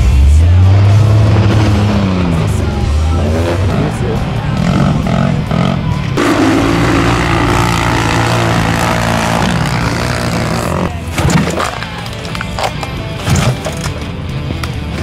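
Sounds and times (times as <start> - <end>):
off-road vehicle engines revving: 0.0 - 13.6.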